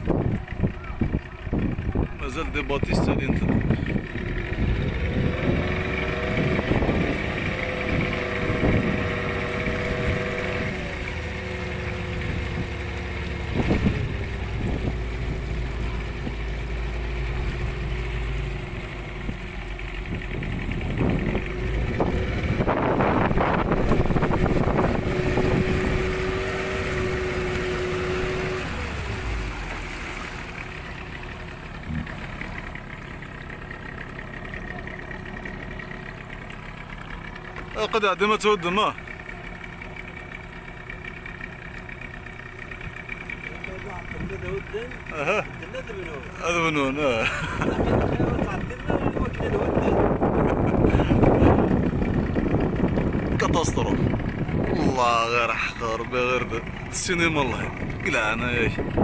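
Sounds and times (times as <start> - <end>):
wind buffeting microphone: 0.0 - 10.7, 12.1 - 16.4, 20.0 - 29.1, 47.4 - 55.0, 57.5 - 59.0
motorboat engine running: 0.0 - 59.0.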